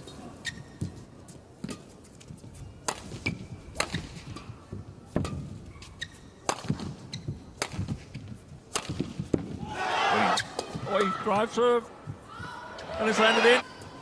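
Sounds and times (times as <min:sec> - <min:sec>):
court shoes squeaking: 0:00.0 - 0:08.6, 0:10.2 - 0:11.1
shuttlecock hit by rackets: 0:02.8 - 0:04.5, 0:06.4 - 0:07.0, 0:07.6 - 0:08.1.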